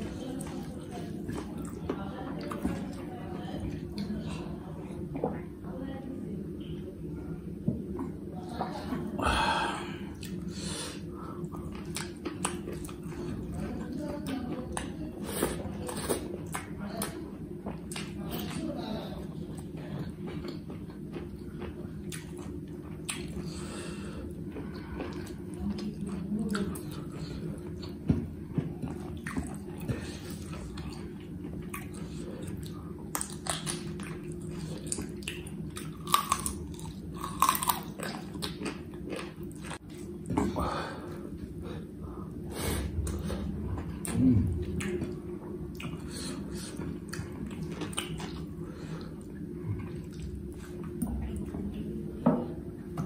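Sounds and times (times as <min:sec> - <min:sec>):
steady low hum: 0:00.0 - 0:53.0
close-up chewing: 0:10.1 - 0:40.5, 0:43.0 - 0:51.6.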